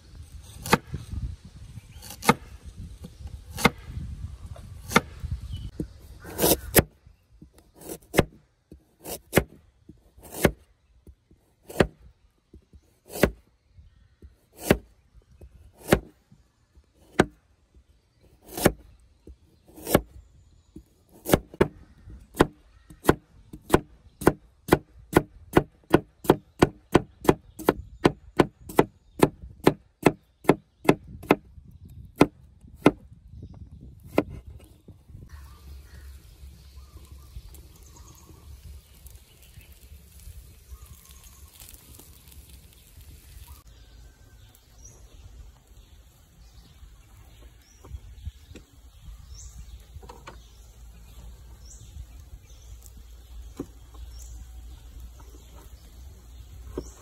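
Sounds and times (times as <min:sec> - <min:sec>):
blade chopping wood: 0:00.5 - 0:01.0, 0:02.0 - 0:02.6, 0:03.5 - 0:04.0, 0:04.8 - 0:05.2, 0:07.6 - 0:09.6, 0:10.2 - 0:10.7, 0:11.6 - 0:12.1, 0:13.1 - 0:13.4, 0:14.5 - 0:14.9, 0:15.8 - 0:16.2, 0:17.0 - 0:17.4, 0:18.4 - 0:18.9, 0:19.7 - 0:20.1, 0:21.1 - 0:31.5, 0:32.2 - 0:33.0, 0:34.0 - 0:34.4.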